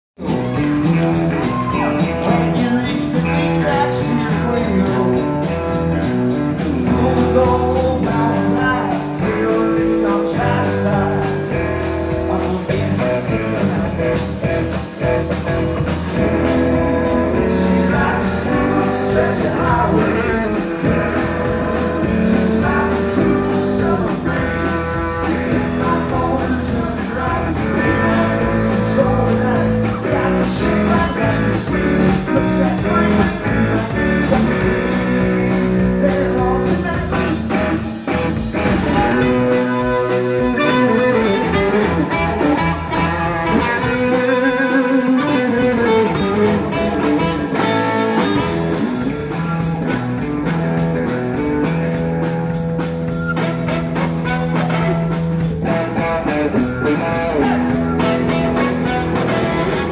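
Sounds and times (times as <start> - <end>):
man singing into microphone: 0.2 - 5.7, 6.8 - 14.7, 16.3 - 37.6, 38.8 - 48.5
live rock band playing: 0.2 - 59.9.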